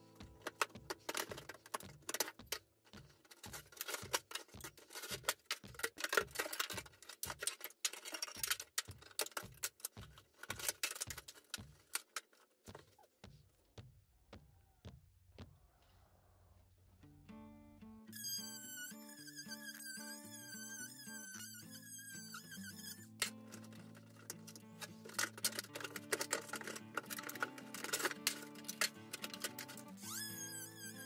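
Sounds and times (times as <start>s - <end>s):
old wood cracking and snapping: 23.2s - 29.9s
debris rattling: 23.2s - 30.0s.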